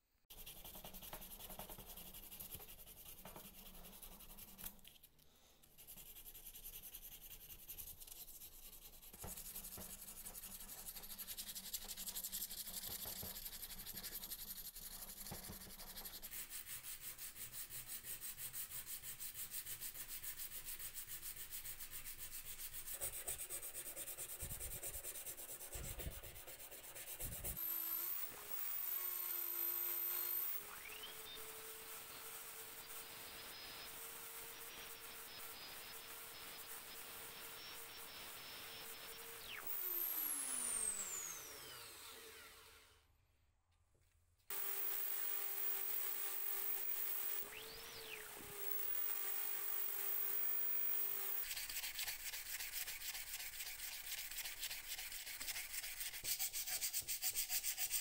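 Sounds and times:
sanding metal by hand: 0.3 - 4.8, 5.8 - 29.2, 51.3 - 58.0
electric drill whine: 27.6 - 43.0, 44.5 - 51.5.

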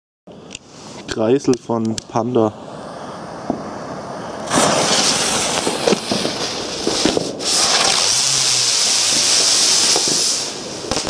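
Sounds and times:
firework hissing sparks: 0.4 - 1.1, 2.0 - 11.0
firework crackles: 0.4 - 11.0.

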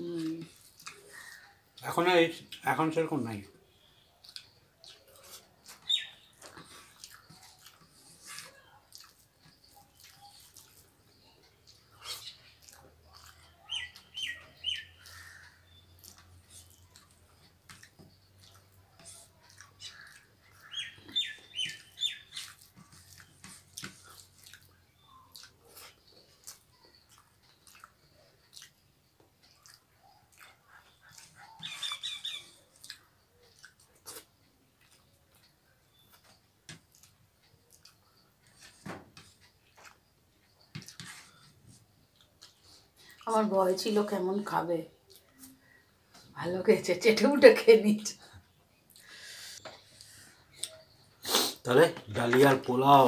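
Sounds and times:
chewing: 0.0 - 1.8, 4.2 - 43.3, 45.0 - 46.3
bird chirping: 3.6 - 8.7, 9.4 - 43.1, 48.4 - 53.0.

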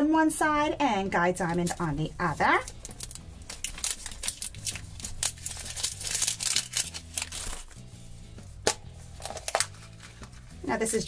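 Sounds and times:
soft background music: 0.0 - 11.0
plastic wrapper crinkling and tearing: 2.6 - 7.8, 9.0 - 10.6.

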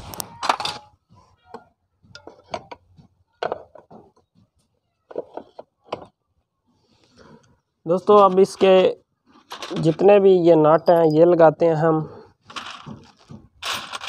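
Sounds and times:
metal parts knocking on crankcase: 12.5 - 14.0.

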